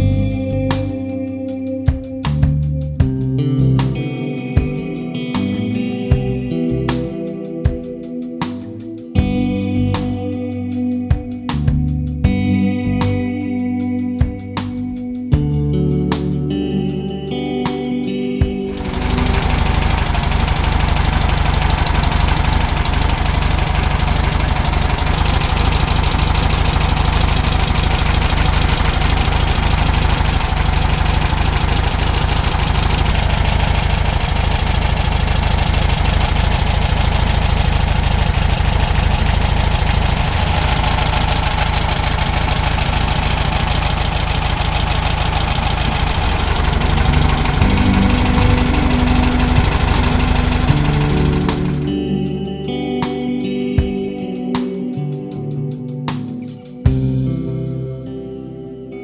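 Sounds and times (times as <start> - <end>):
car engine idling: 18.7 - 52.2.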